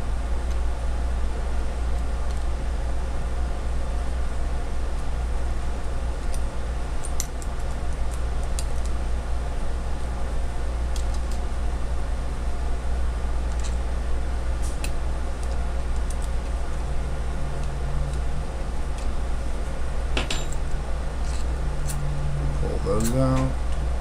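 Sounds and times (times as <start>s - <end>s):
steady low hum: 0.0s - 24.0s
allen key clicking in bolts: 22.9s - 23.5s.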